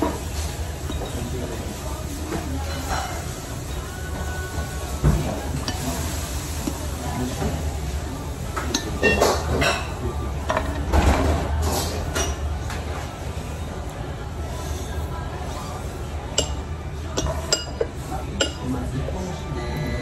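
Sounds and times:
spoon and chopsticks clinking bowl: 0.9 - 1.3, 5.5 - 6.0, 8.6 - 10.8, 16.3 - 18.7.

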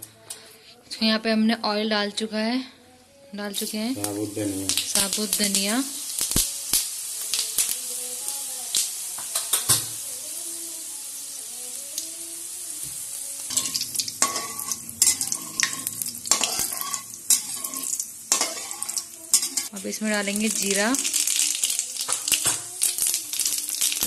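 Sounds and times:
seeds sizzling in hot oil: 3.5 - 24.0
metal ladle scraping pan: 13.5 - 19.7.

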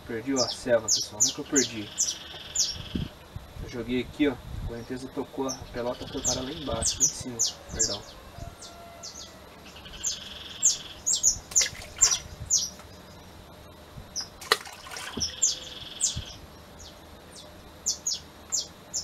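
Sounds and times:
small birds chirping: 0.0 - 19.0
splash in river: 14.4 - 15.4.

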